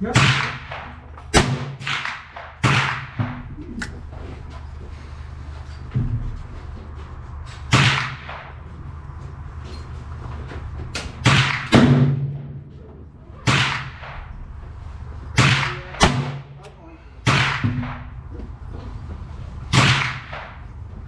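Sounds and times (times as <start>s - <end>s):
revolver gunshots: 0.0s - 3.4s, 7.7s - 8.6s, 11.2s - 12.4s, 13.4s - 14.4s, 15.4s - 16.6s, 17.2s - 18.1s, 19.7s - 20.7s
steady low hum: 0.0s - 21.0s.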